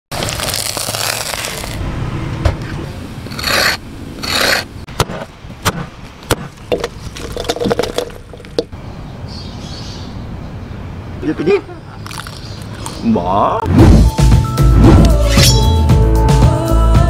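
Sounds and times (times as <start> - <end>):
rasping scrapes: 3.3 - 4.7.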